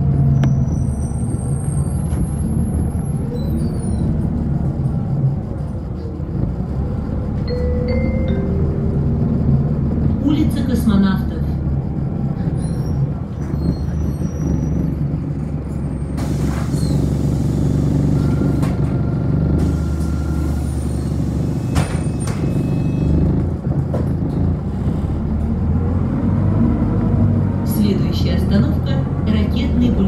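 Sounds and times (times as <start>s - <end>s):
bus engine running: 0.0s - 30.0s
air brake hisses: 16.1s - 17.9s.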